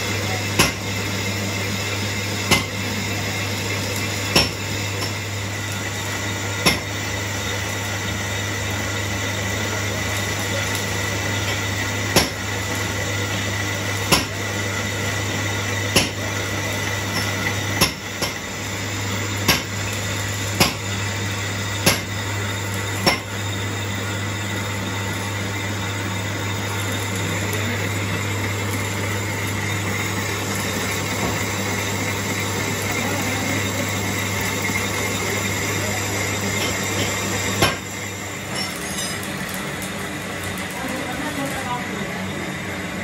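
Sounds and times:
metal lathe humming: 0.0 - 43.0.

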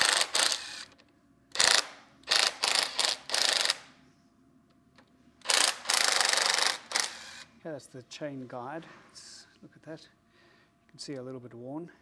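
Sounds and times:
socket ratchet clicking: 0.0 - 3.9, 5.4 - 7.4.

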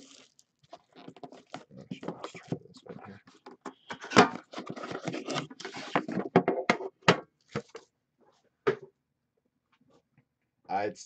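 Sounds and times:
shrink wrap crinkling and tearing: 0.0 - 2.3.

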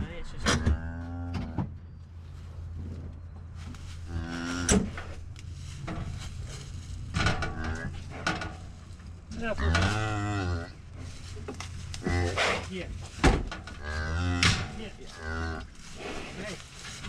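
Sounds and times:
cow mooing: 0.5 - 1.6, 4.0 - 5.1, 7.4 - 8.1, 9.6 - 10.8, 12.0 - 12.5, 13.8 - 15.7
low engine hum: 1.7 - 13.9.

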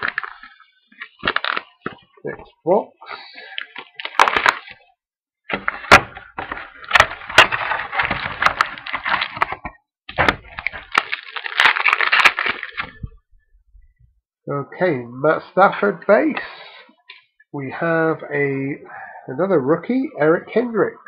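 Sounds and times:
plastic wrap crinkling and tearing: 0.0 - 2.2, 3.2 - 4.9, 5.5 - 13.2.

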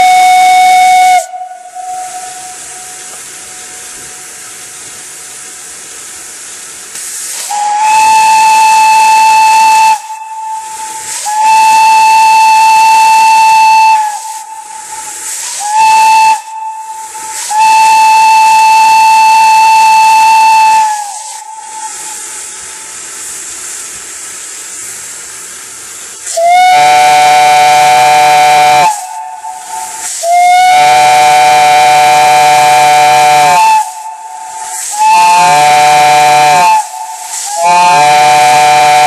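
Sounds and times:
steam locomotive whistle: 0.0 - 4.8, 7.2 - 23.3, 26.2 - 39.0
steam hissing: 0.0 - 39.0.

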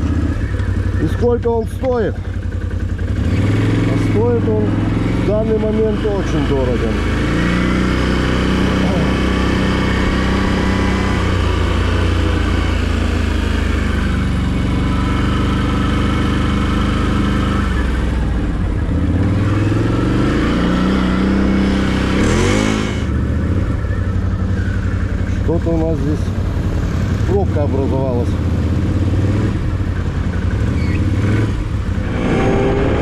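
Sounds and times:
quad bike engine revving: 0.0 - 33.0
burst of rising-pitch noise: 32.0 - 33.0.

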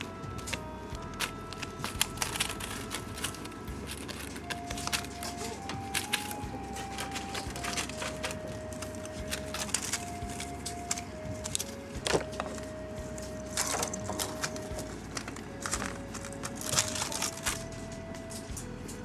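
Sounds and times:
slow simple melody: 0.0 - 19.0
kitten batting crinkly toy: 0.4 - 18.5.

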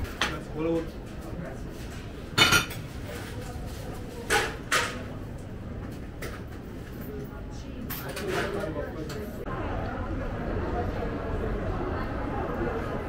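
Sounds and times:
crockery and cutlery clinking: 2.3 - 2.9.

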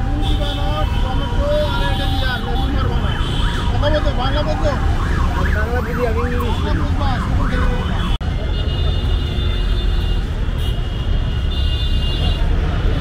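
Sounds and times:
street traffic rumble: 0.0 - 13.0
siren yelping: 1.7 - 8.2.

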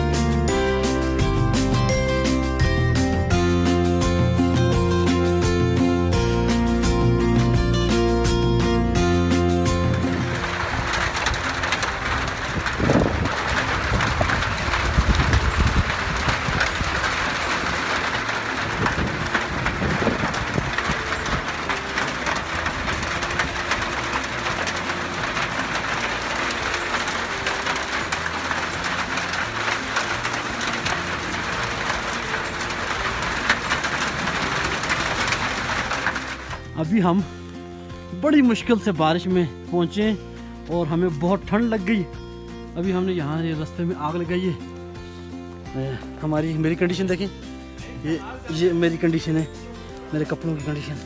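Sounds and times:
steady rain falling: 0.0 - 51.0
low thumps: 7.6 - 36.8.

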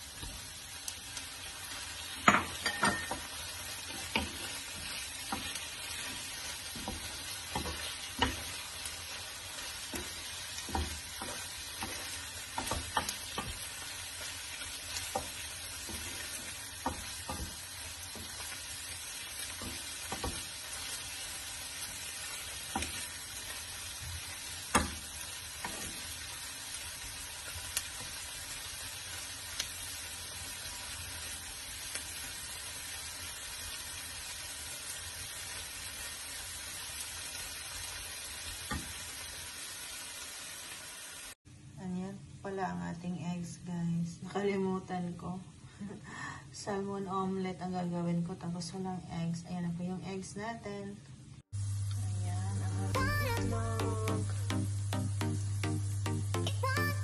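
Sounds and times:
food sizzling in a frying pan: 0.0 - 41.7, 51.4 - 57.0
spatula knocking and scraping pan: 2.2 - 8.7, 9.6 - 14.3, 14.9 - 18.6, 19.4 - 21.0, 21.9 - 26.3.

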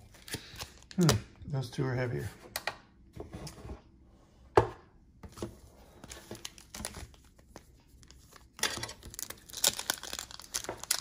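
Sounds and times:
wrapper crinkling and tearing: 6.1 - 11.0.

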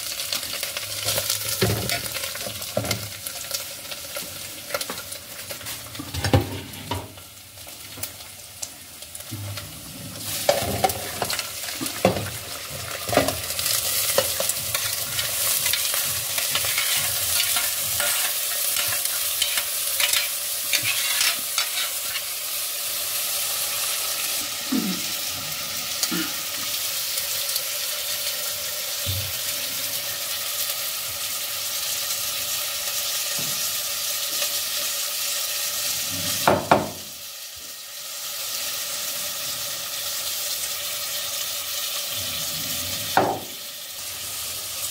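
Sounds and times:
meat sizzling in a pot: 0.0 - 44.9
fork and spoon scraping pot: 16.5 - 22.3.

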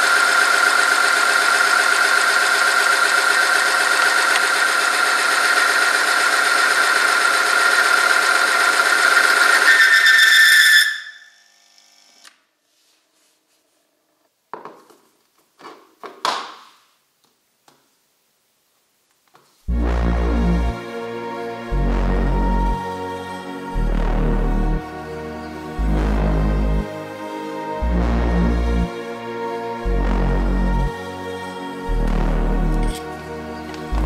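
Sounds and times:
testing machine grinding whine: 0.0 - 12.2, 19.7 - 34.0.

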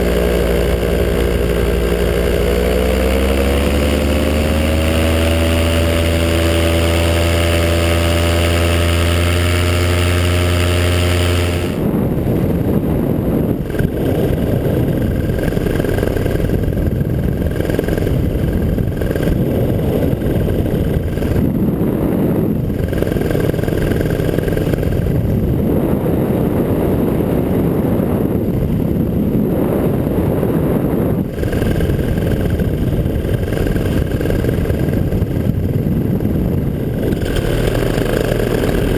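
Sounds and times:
paramotor engine running: 0.0 - 38.9.

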